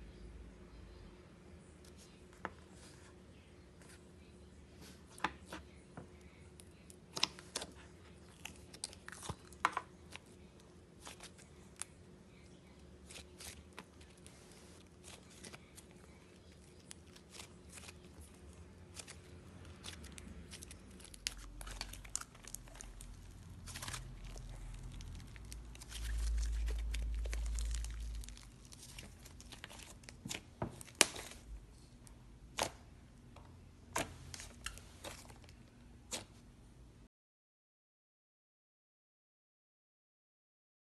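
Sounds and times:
slime popping and crackling: 0:19.7 - 0:31.4.

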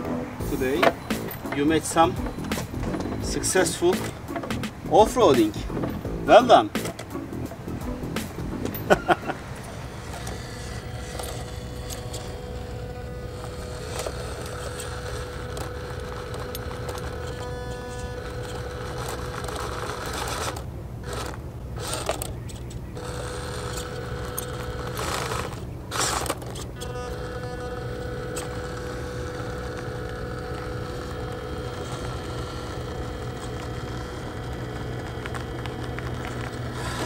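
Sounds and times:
electric motor and gearbox whining: 0:00.0 - 0:37.0
tyres scraping on rock: 0:08.0 - 0:37.0.

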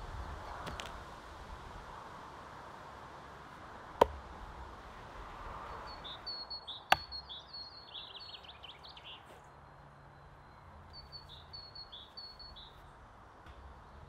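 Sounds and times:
small birds chirping: 0:00.1 - 0:01.1, 0:04.4 - 0:14.0
axe striking wood: 0:04.0 - 0:04.3, 0:06.9 - 0:07.2.

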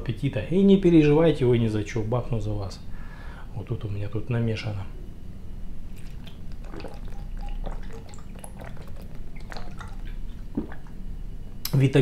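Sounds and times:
man gulping drink: 0:05.9 - 0:11.0.

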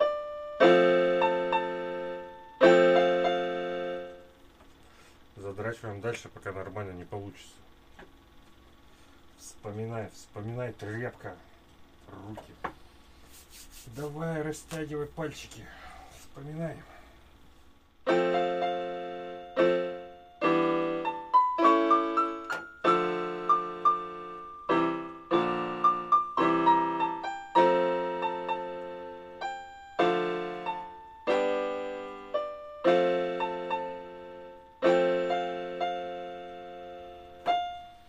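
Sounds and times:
keyboard piano piece: 0:00.0 - 0:04.8, 0:18.0 - 0:38.0.

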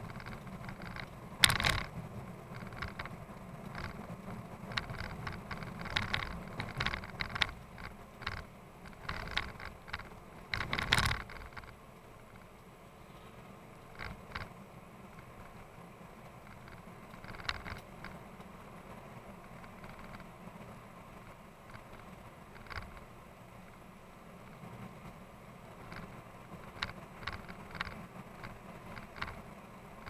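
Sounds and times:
vehicle cabin rattling: 0:00.0 - 0:12.4
vehicle engine and road rumble: 0:00.0 - 0:30.0.

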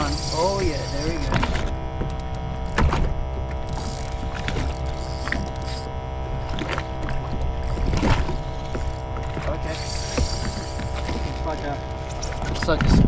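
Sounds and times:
jet ski engine idling: 0:00.0 - 0:12.8
sharp knocks: 0:01.2 - 0:03.2.

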